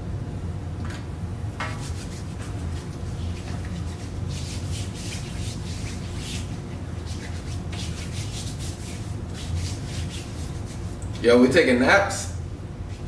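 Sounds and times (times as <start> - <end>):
palms rubbing together: 1.6 - 11.3.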